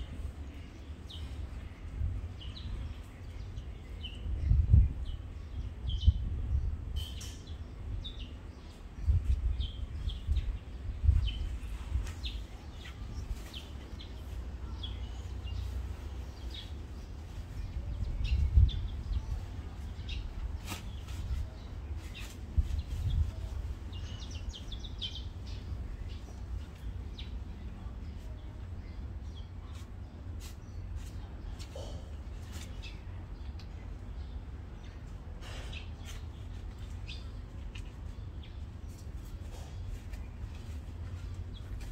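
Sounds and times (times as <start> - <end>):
low microphone rumble: 0.0 - 7.0, 7.7 - 29.2
small birds chirping: 0.0 - 41.9.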